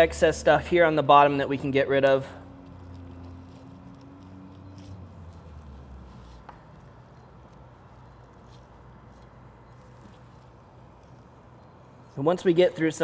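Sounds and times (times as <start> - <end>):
knife squishing and scraping meat: 2.4 - 12.2.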